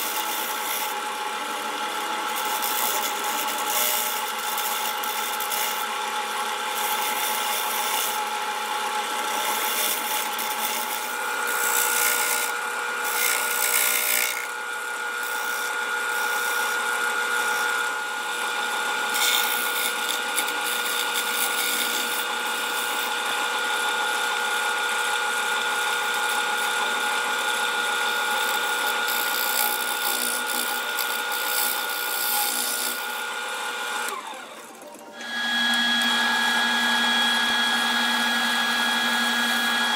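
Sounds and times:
wood lathe whining: 0.0 - 39.9.

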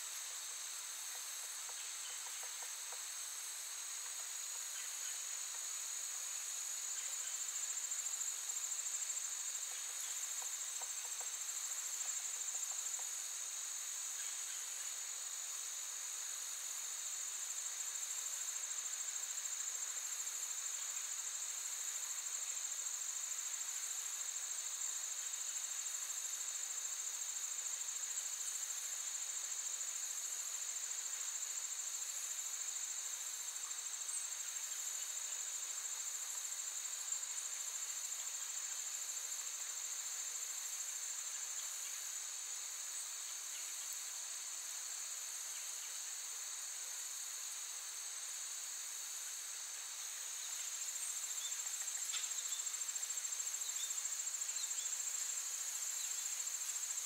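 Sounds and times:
insects trilling: 0.0 - 57.0.

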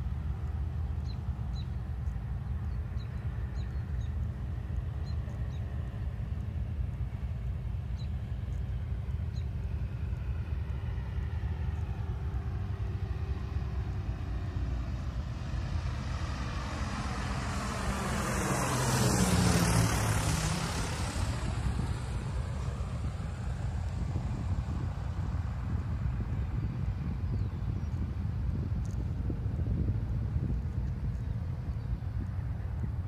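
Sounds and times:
propeller aircraft flying overhead: 0.0 - 33.0.

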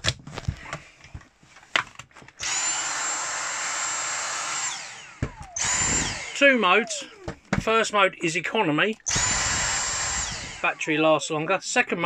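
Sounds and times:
handheld vacuum motor whining: 2.4 - 7.9, 8.9 - 11.0.

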